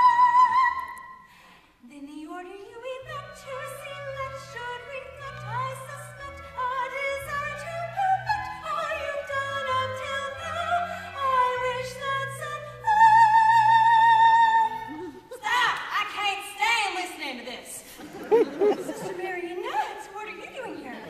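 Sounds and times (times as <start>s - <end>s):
woman singing opera: 0.0s - 1.2s, 1.8s - 16.0s.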